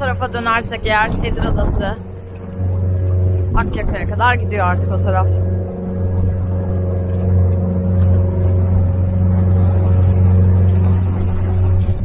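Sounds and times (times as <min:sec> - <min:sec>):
outboard motor droning: 0:00.0 - 0:12.0.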